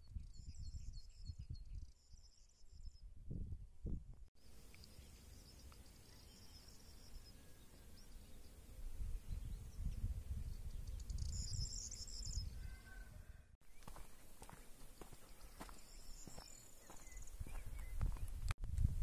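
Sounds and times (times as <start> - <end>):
wind buffeting microphone: 3.0 - 4.3, 8.6 - 19.0
faint high chirping: 4.5 - 18.4.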